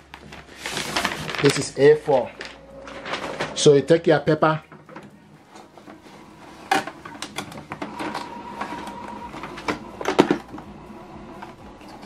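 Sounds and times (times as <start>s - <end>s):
paper rustling against tray: 0.0s - 4.2s.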